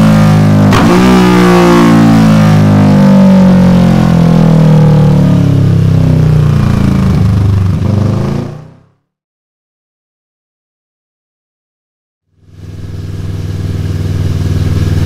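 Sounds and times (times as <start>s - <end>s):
motorcycle engine running loud: 0.0s - 9.0s, 12.3s - 15.0s.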